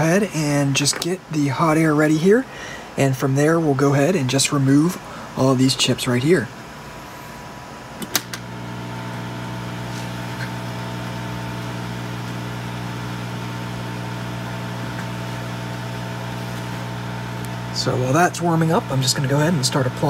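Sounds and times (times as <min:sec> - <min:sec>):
blower fan humming: 0:00.0 - 0:20.0
switch click: 0:08.0 - 0:08.4.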